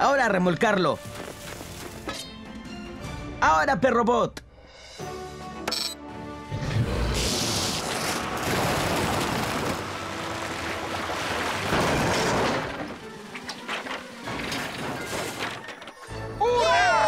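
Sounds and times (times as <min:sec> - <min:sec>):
background music: 0:00.0 - 0:17.0
loud cartoon rushing noise: 0:06.6 - 0:09.6.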